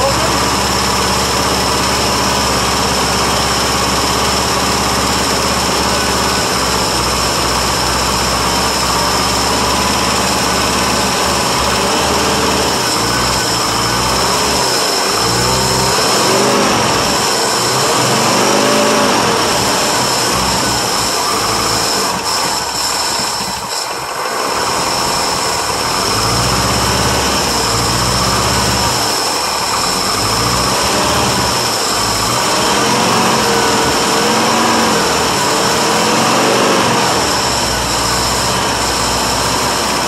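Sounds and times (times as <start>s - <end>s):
v eight engine running: 0.0s - 40.0s.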